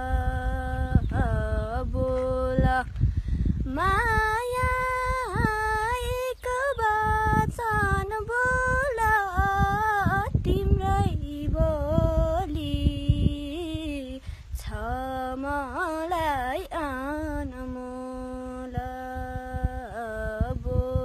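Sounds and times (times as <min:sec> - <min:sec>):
girl singing unaccompanied: 0:00.0 - 0:21.0
low rumbling noise: 0:00.0 - 0:21.0.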